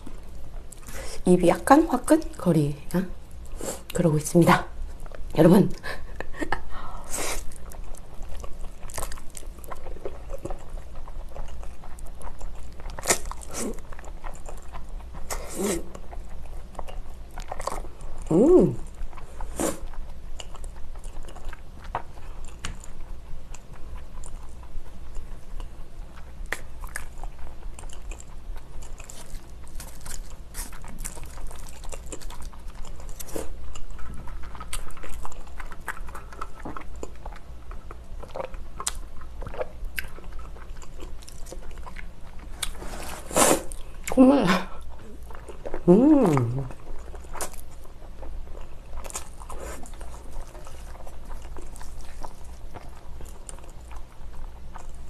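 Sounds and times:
chewing crunchy food: 0:00.0 - 0:04.0, 0:06.2 - 0:55.0
short vocal sound: 0:18.3 - 0:18.8, 0:45.9 - 0:46.7.

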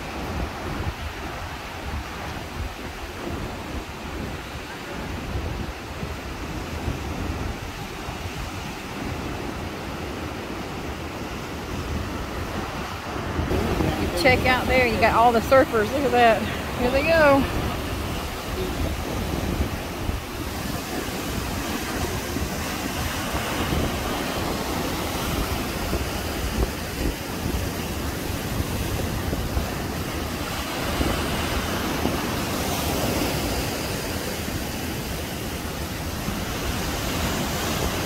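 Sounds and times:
surf breaking and washing: 0:00.0 - 0:38.0
wind rumbling on microphone: 0:00.0 - 0:38.0.

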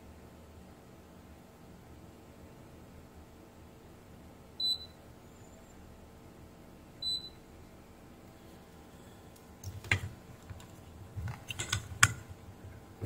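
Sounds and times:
circuit board clicks and knocks: 0:09.6 - 0:12.3.

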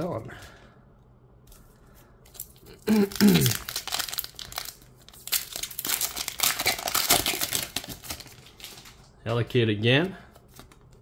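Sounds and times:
foil wrapper tearing and crinkling: 0:02.3 - 0:09.1.

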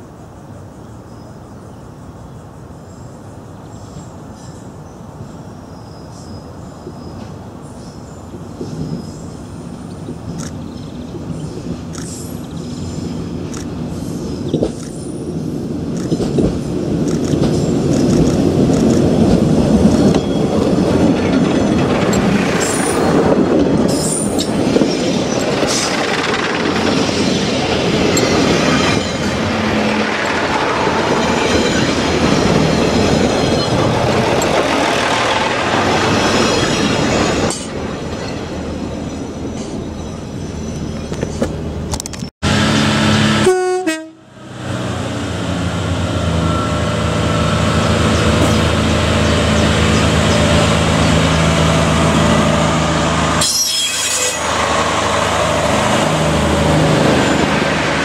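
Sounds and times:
train engine and wheels on rails: 0:00.0 - 0:58.0
train horn note: 0:42.5 - 0:44.4.

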